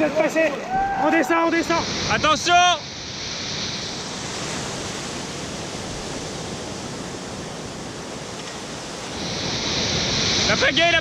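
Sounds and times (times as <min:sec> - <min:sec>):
waves washing up a beach: 0:00.0 - 0:11.0.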